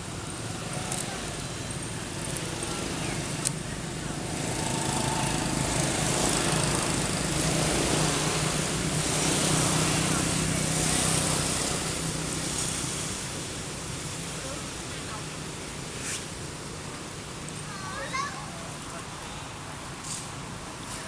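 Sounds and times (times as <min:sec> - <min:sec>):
small engine running: 0:00.0 - 0:13.3.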